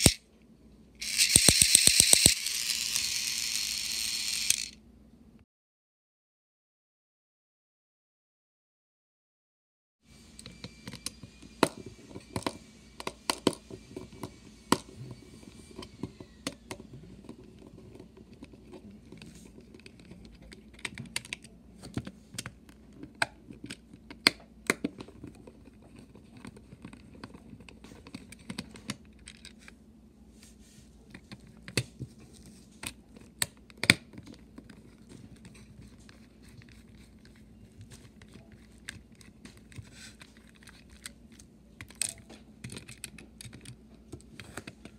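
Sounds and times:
screwdriver clicking and scraping: 0.0 - 0.2, 1.0 - 4.8
faint low hum: 10.1 - 44.9.

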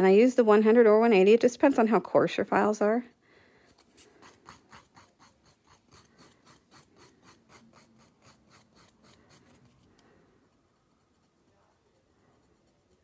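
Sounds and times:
nail file rasping on fingernail: 3.7 - 13.0.

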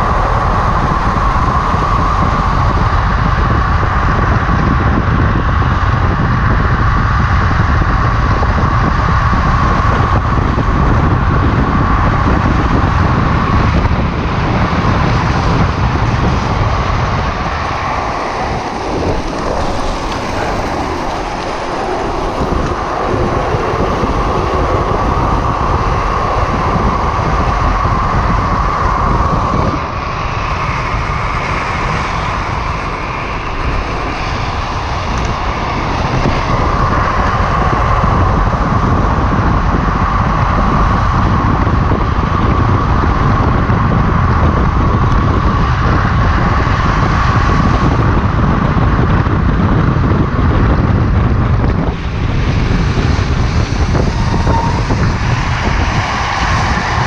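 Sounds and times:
wheels whirring on asphalt: 0.0 - 57.0
wind rumble on microphone: 0.0 - 57.0.

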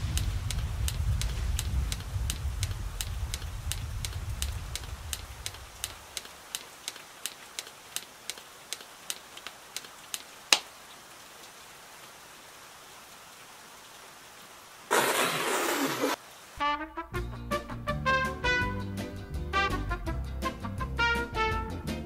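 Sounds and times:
sharp ticks: 0.0 - 10.6
faint hiss: 0.0 - 16.7.

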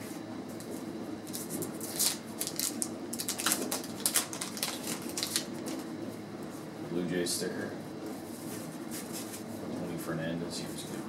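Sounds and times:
wax paper wrapper crinkling: 0.6 - 5.9.

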